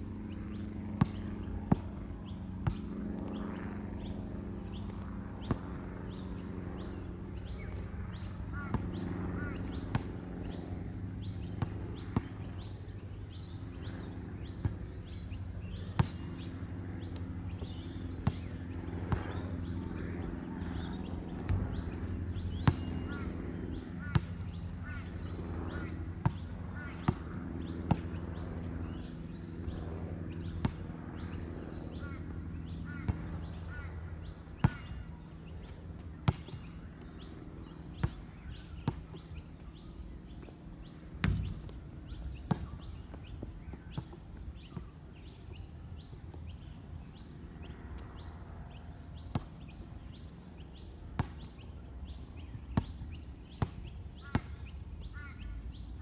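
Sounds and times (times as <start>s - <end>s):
birds chirping: 0.0s - 56.0s
steady low hum: 0.0s - 56.0s
basketball bouncing on concrete: 1.0s - 1.9s, 2.6s - 2.8s, 8.6s - 10.1s, 11.4s - 12.7s, 15.7s - 16.3s, 17.1s - 19.4s, 22.4s - 23.2s, 25.7s - 27.3s, 27.9s - 28.2s, 30.4s - 31.3s, 34.6s - 35.0s, 36.2s - 36.7s, 41.2s - 44.9s, 49.3s - 49.6s, 51.2s - 51.6s.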